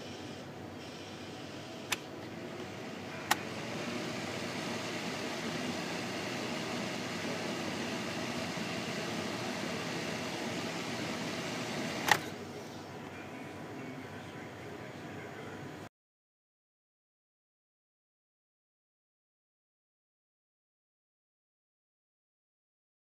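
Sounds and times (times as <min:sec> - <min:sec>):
box fan running: 0:00.0 - 0:15.9
sharp click: 0:12.0 - 0:12.3.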